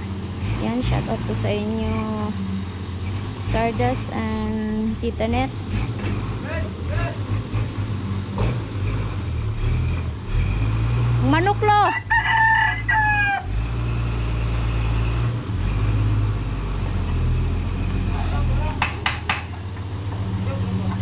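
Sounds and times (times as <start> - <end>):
truck engine droning: 0.0 - 21.0
rooster crowing: 11.8 - 13.8.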